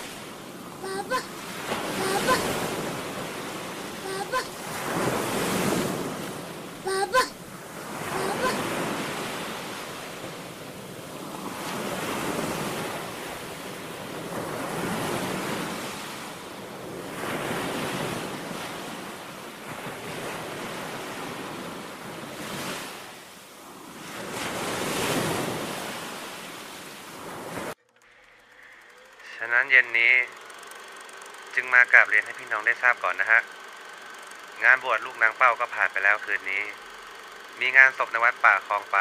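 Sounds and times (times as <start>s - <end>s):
small waves breaking on beach: 0.0s - 27.8s.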